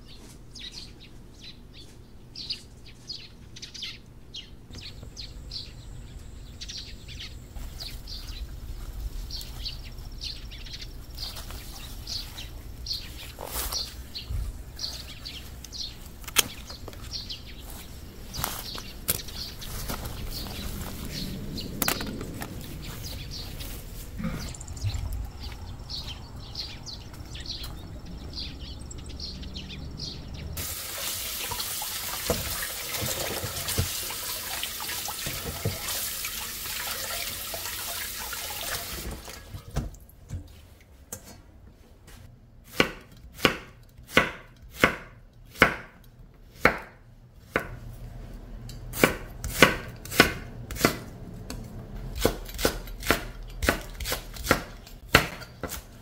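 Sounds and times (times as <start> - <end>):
faint outdoor sounds: 0.0 - 56.0
tap water running into steel bowl: 30.6 - 39.6
knife chopping on wooden board: 42.7 - 46.0, 46.6 - 47.8, 48.9 - 51.0, 52.2 - 55.9.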